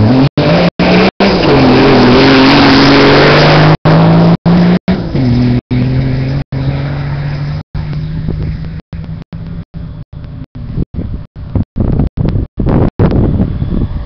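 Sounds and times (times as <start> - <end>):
car engine revving hard: 0.0 - 8.4.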